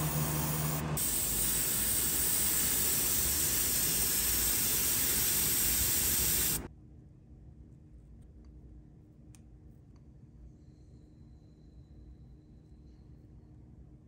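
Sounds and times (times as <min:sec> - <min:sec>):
airbrush spraying hiss: 0:00.0 - 0:06.7.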